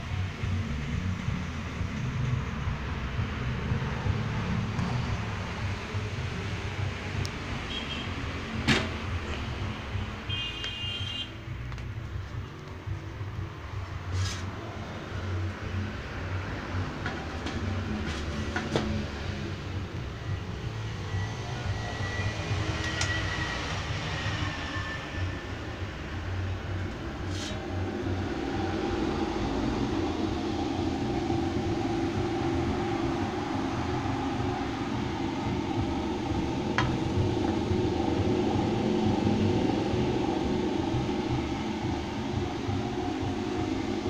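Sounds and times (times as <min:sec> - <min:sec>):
low mechanical hum: 0:00.0 - 0:44.0
faint whistling tone: 0:21.0 - 0:25.4.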